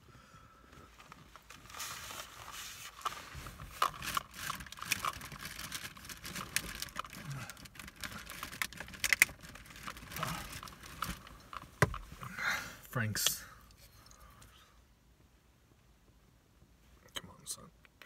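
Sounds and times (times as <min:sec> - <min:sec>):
nylon jacket rustling: 0:00.9 - 0:06.6.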